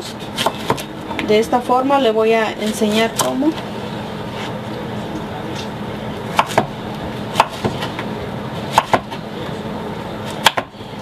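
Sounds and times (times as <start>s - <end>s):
knife chopping on cutting board: 0.4s - 0.9s, 6.3s - 6.7s, 7.3s - 7.9s, 8.7s - 9.2s, 10.3s - 10.7s.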